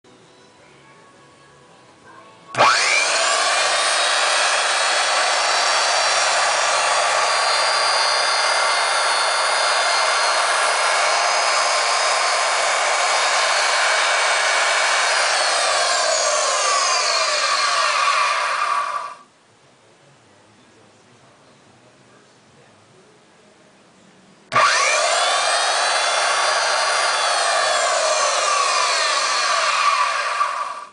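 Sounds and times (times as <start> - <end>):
grinder motor whining: 2.6 - 19.2, 24.5 - 30.9.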